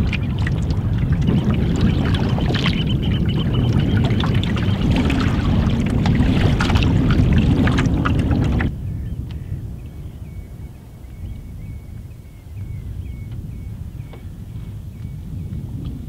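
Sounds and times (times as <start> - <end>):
waves slapping canoe hull: 0.0 - 8.7
wind rumble on microphone: 0.0 - 16.0.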